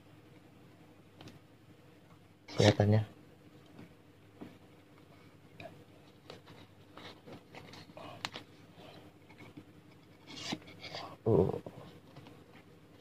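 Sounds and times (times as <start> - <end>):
paper rustling and scraping: 9.4 - 11.1.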